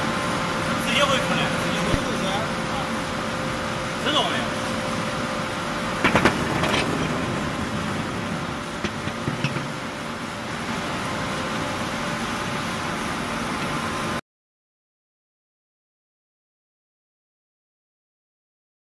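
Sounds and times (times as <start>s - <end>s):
pallet machine mechanical hum: 0.0s - 14.2s
sharp clicks and knocks: 6.0s - 7.1s, 8.8s - 9.8s.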